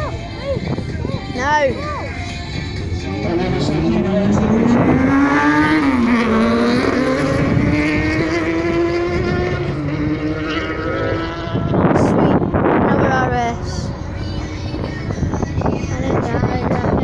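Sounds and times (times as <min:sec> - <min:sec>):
racing car engine accelerating: 0:03.0 - 0:12.9.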